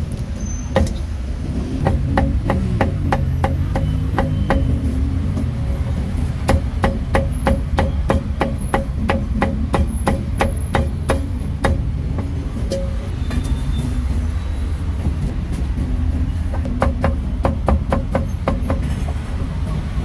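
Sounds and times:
cleaver chopping on wooden block: 1.8s - 4.8s, 6.5s - 11.9s.

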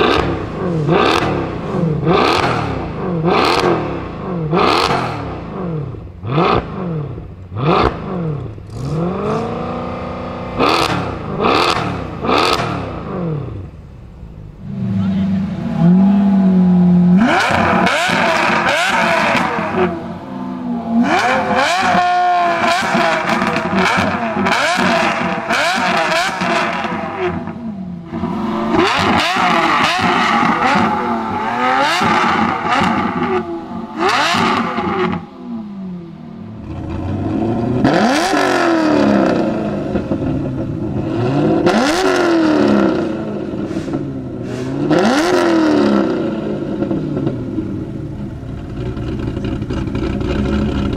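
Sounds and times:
deep engine revving: 0.0s - 13.7s, 14.4s - 50.9s
sports car engine revving: 0.0s - 50.9s.

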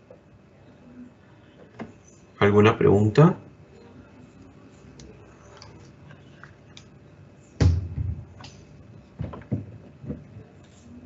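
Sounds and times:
sudden thump: 7.6s - 8.5s
soft knocks: 9.2s - 10.3s.

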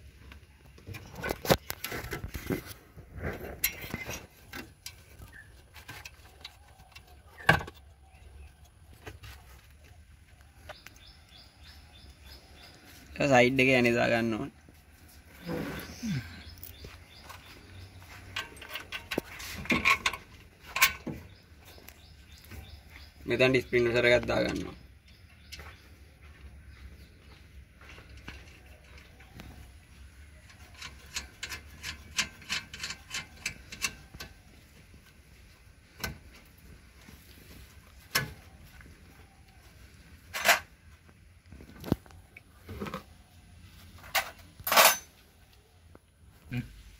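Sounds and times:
birds chirping: 0.0s - 46.9s
metallic clicks of bolt and spanner: 18.3s - 21.1s, 30.5s - 34.4s.

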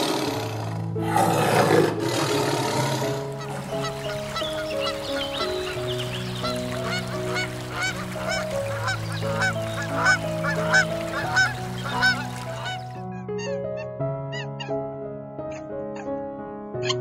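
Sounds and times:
soft background music: 0.0s - 17.0s
waterfowl honking: 3.3s - 13.6s
water rushing over weir: 3.4s - 12.9s
high-pitched bird calls: 3.4s - 14.8s.

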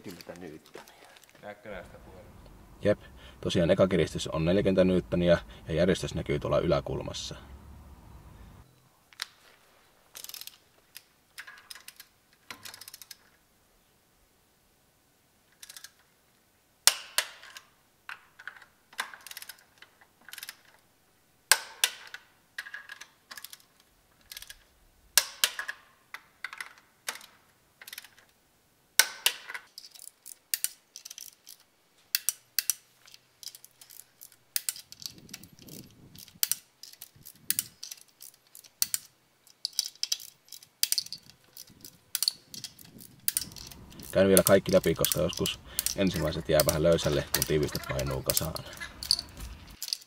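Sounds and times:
ratchet wrench clicking: 32.2s - 47.5s.

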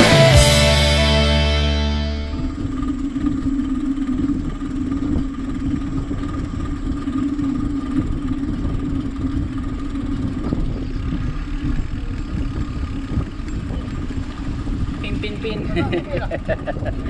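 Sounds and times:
low rumble: 0.0s - 6.9s
constant hum: 0.0s - 17.0s
bicycle tyres on asphalt: 2.4s - 15.6s
wind buffeting microphone: 4.4s - 17.0s.

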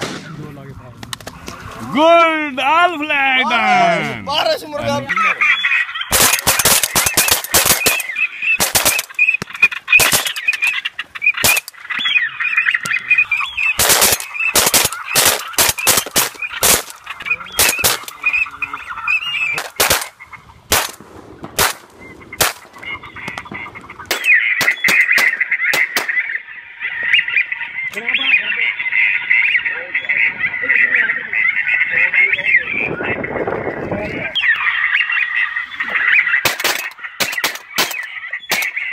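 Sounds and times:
shotgun fire: 0.0s - 0.6s, 6.1s - 9.1s, 13.8s - 16.9s, 17.6s - 18.1s, 19.6s - 20.1s, 20.7s - 22.7s
ducks quacking and honking: 1.2s - 38.9s.

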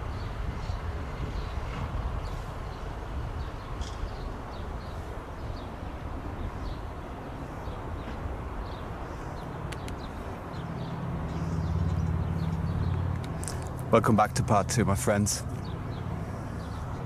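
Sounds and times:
small birds chirping: 0.1s - 17.0s
sharp click: 9.7s - 10.1s.

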